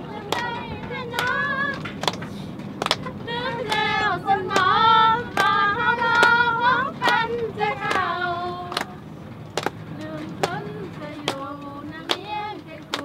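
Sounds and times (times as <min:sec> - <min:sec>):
women singing together: 0:00.0 - 0:02.1, 0:02.8 - 0:13.0
truck rumble: 0:00.0 - 0:13.0
sharp hand claps: 0:00.3 - 0:06.4, 0:07.0 - 0:08.1, 0:08.7 - 0:09.8, 0:11.2 - 0:11.4, 0:12.0 - 0:13.0.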